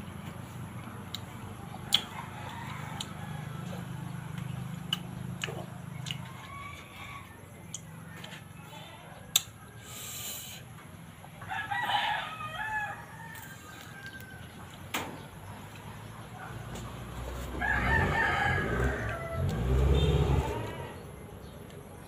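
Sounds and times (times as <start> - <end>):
rooster crowing: 1.8 - 4.4, 6.0 - 9.9, 11.4 - 14.7, 17.2 - 21.2.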